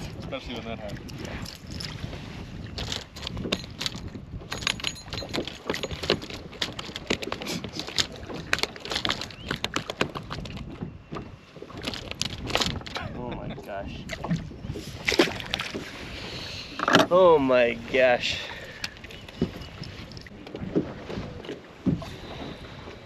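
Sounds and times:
wind noise on microphone: 0:00.0 - 0:17.1, 0:17.7 - 0:23.0
fishing tackle clicks and knocks: 0:00.9 - 0:02.0, 0:02.8 - 0:13.4, 0:16.7 - 0:17.2.

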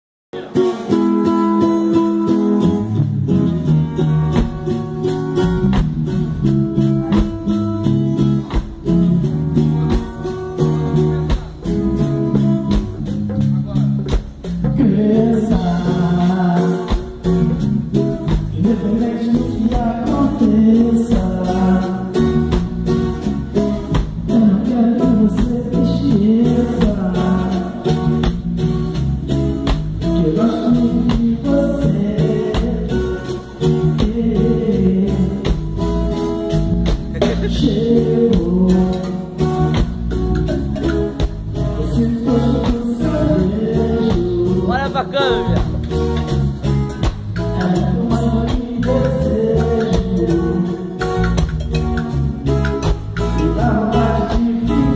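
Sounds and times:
guitar: 0:00.3 - 0:54.9
percussion beat: 0:00.4 - 0:54.9
person singing: 0:14.6 - 0:22.8, 0:24.2 - 0:28.2, 0:30.0 - 0:36.0, 0:37.1 - 0:39.9, 0:40.5 - 0:45.8, 0:47.4 - 0:51.4, 0:53.2 - 0:54.9.

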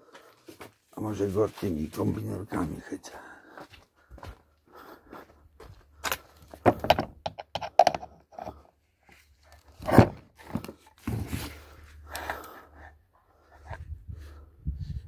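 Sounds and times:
tools knocking on metal housing: 0:06.7 - 0:08.1.

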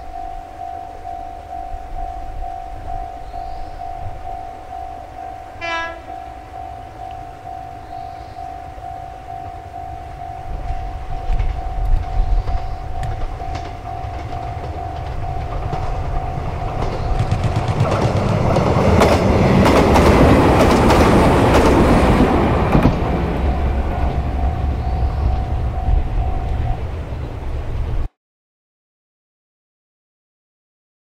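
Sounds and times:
steady repeating tone: 0:00.0 - 0:27.4
train passing: 0:00.0 - 0:28.1
wheels clicking over rail joints: 0:09.2 - 0:26.7.

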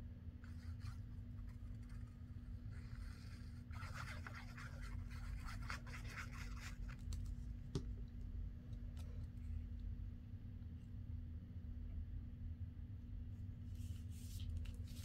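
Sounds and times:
scratchy rustling on paper: 0:00.4 - 0:07.3.

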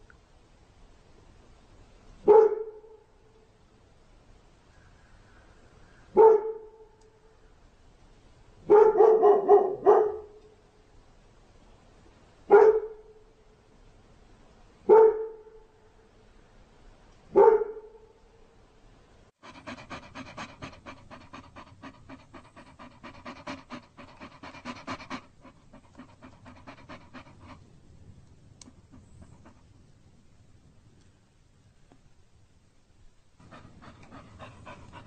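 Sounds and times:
dog barking: 0:02.2 - 0:03.0, 0:06.1 - 0:06.9, 0:08.6 - 0:10.4, 0:12.5 - 0:13.1, 0:14.9 - 0:15.6, 0:17.3 - 0:18.0
dog panting: 0:19.4 - 0:27.6, 0:28.7 - 0:29.7, 0:33.4 - 0:35.0.

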